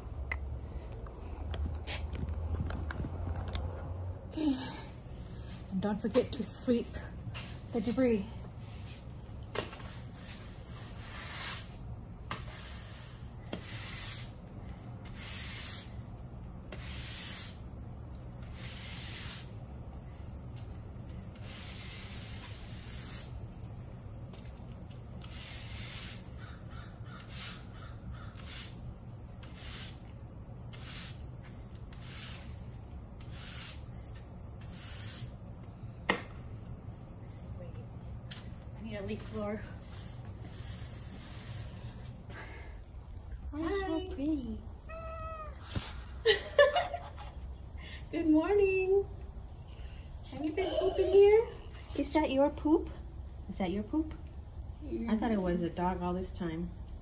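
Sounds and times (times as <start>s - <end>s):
crickets chirring: 0.0s - 57.0s
broom sweeping concrete: 5.3s - 14.4s, 15.0s - 16.0s, 16.7s - 19.6s, 20.6s - 23.8s, 24.4s - 26.3s, 27.1s - 35.5s, 39.0s - 42.2s, 45.4s - 47.3s.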